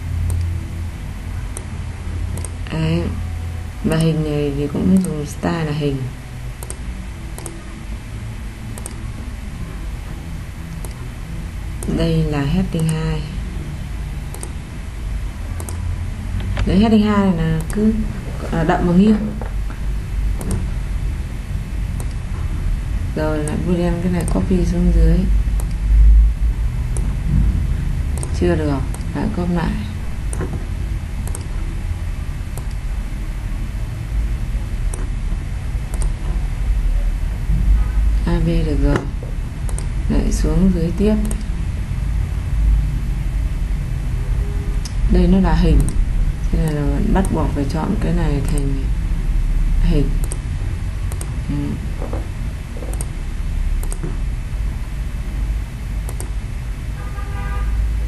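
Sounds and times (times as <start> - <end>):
low background hum: 0.0 - 58.0
low background rumble: 0.0 - 58.0
computer mouse clicking: 2.3 - 2.7, 6.6 - 6.8, 7.4 - 7.6, 8.8 - 9.0, 10.8 - 11.0, 14.3 - 14.6, 15.6 - 15.8, 17.5 - 17.8, 20.4 - 20.7, 22.0 - 22.2, 23.4 - 24.5, 25.6 - 25.8, 28.1 - 29.1, 31.2 - 31.6, 32.5 - 32.9, 34.9 - 35.2, 35.9 - 36.4, 38.9 - 40.0, 40.9 - 41.5, 45.8 - 46.0, 48.4 - 48.7, 50.2 - 50.4, 51.1 - 51.4, 52.8 - 53.2, 53.8 - 54.2, 56.0 - 56.4.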